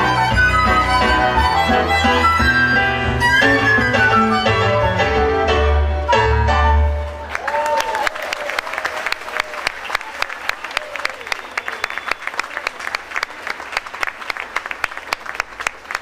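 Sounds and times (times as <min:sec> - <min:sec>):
audience applauding: 0:07.0 - 0:16.0.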